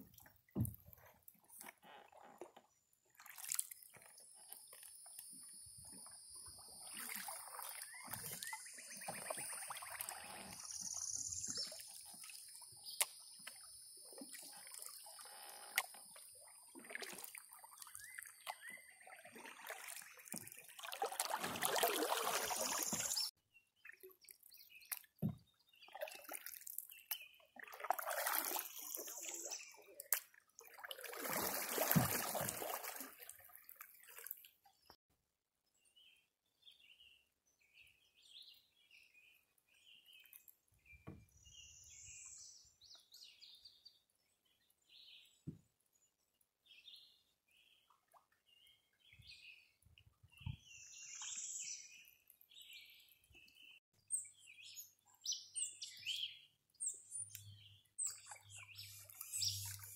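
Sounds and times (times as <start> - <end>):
canoe paddles splashing in water: 6.6 - 23.3, 27.6 - 34.4.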